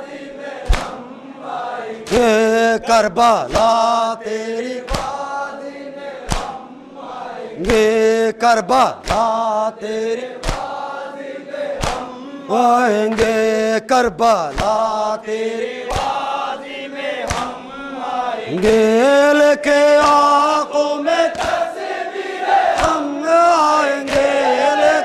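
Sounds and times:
group of men chanting: 0.0s - 25.0s
chest-beating slaps: 0.6s - 1.1s, 2.0s - 2.3s, 3.5s - 3.9s, 4.8s - 5.2s, 6.3s - 6.6s, 9.0s - 9.4s, 10.4s - 10.8s, 11.8s - 12.2s, 13.1s - 13.5s, 14.5s - 15.0s, 15.9s - 16.3s, 17.2s - 17.6s, 18.5s - 18.9s, 20.0s - 20.4s, 21.3s - 21.7s, 22.7s - 23.1s, 24.1s - 24.4s
man leading mourning chant: 2.0s - 5.6s, 7.5s - 10.4s, 12.0s - 16.2s, 16.8s - 21.8s, 22.8s - 25.0s.

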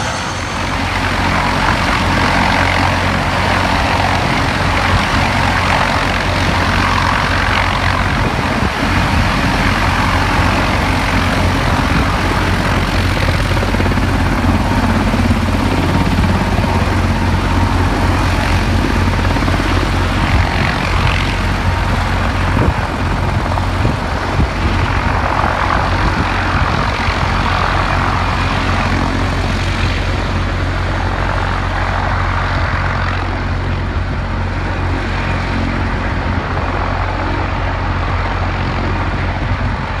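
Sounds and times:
low hum: 0.0s - 25.7s
helicopter engines and rotor drone: 0.0s - 40.0s.

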